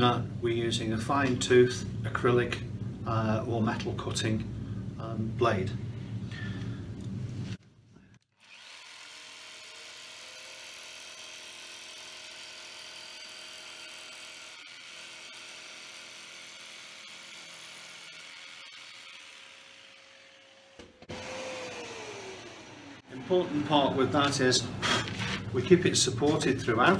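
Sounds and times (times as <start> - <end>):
electric jigsaw cutting acrylic: 8.3 - 25.3.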